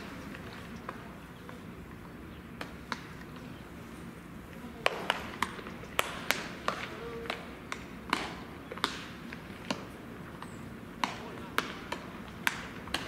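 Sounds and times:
baseballs smacking into gloves: 4.8s - 13.0s.

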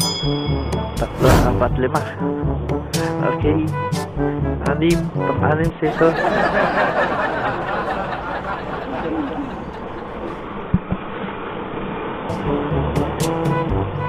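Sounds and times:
short thumps: 1.1s - 1.8s.

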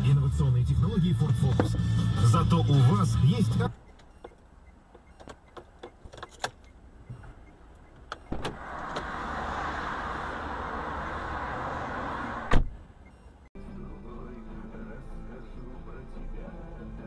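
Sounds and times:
car rushing noise: 8.2s - 13.4s.

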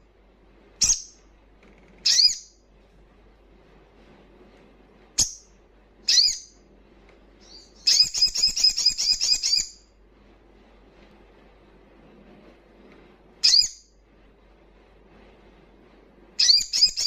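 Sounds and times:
sunbird calling and chirping: 6.1s - 6.6s, 7.4s - 9.8s, 16.4s - 17.0s.

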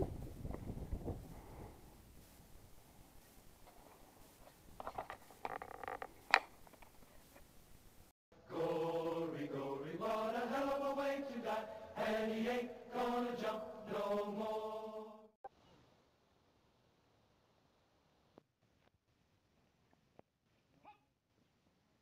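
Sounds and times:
faint outdoor noise: 0.0s - 22.0s
men singing a slow chant: 8.4s - 15.3s.

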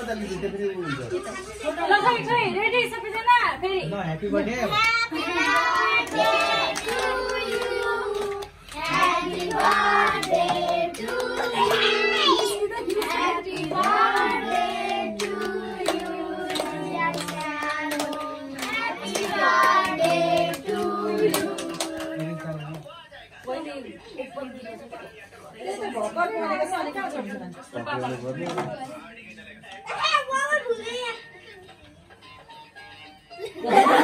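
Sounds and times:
people clapping: 4.8s - 22.9s
group singing a celebration song: 4.9s - 23.0s.

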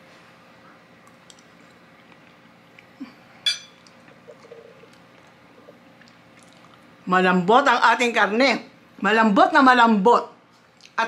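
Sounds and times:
cutlery clinking on plate: 3.4s - 3.8s.

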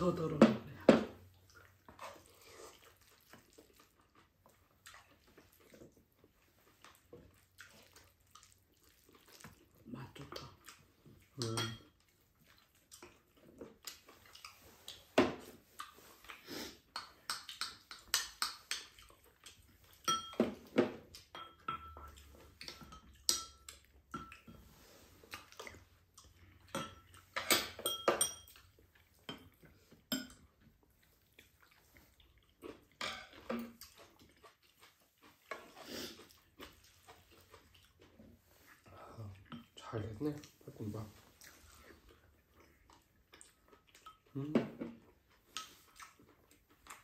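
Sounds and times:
spoons clinking on bowls: 11.4s - 12.0s, 20.0s - 20.5s, 21.3s - 24.6s, 26.7s - 29.5s, 30.1s - 30.5s.

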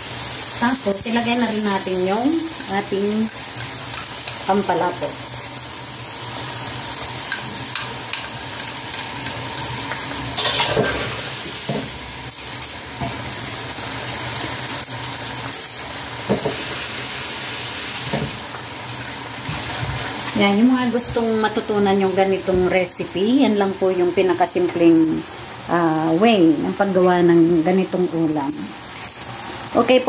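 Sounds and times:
food sizzling in frying pan: 0.0s - 30.0s.

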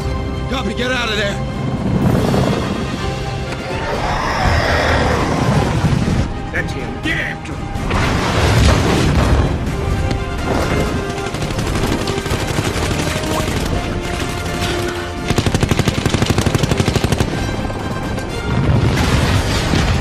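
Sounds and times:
orchestral music: 0.0s - 20.0s
machine-gun fire: 10.6s - 17.5s.

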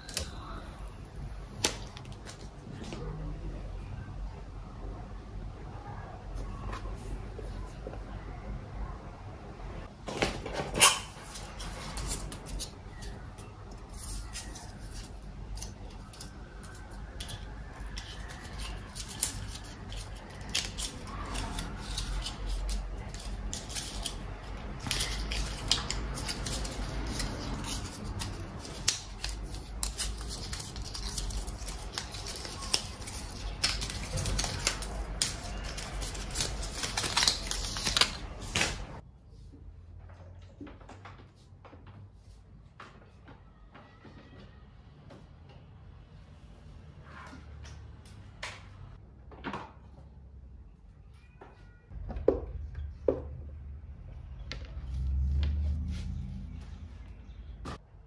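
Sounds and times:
paper wrap rustling: 10.1s - 39.0s.

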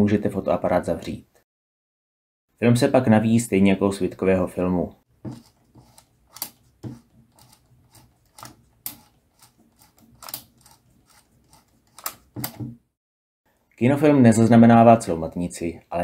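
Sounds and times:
camera winding clicks and ratchet ticks: 7.4s - 12.3s.

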